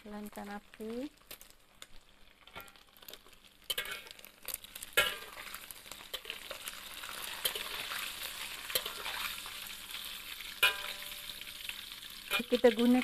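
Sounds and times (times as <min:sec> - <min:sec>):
fish frying in hot oil: 0:00.0 - 0:13.0
metal utensils clinking on wok: 0:03.7 - 0:04.2, 0:05.0 - 0:05.5, 0:06.1 - 0:08.0, 0:08.6 - 0:09.2, 0:10.6 - 0:11.3, 0:12.3 - 0:13.0.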